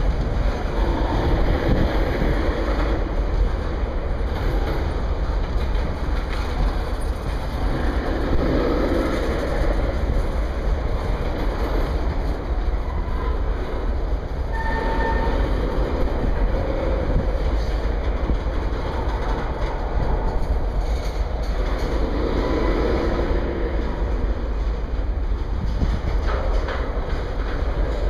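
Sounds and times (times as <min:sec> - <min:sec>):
train wheels rumbling on rail: 0:00.0 - 0:28.0
faint wheel squeal: 0:14.5 - 0:15.5.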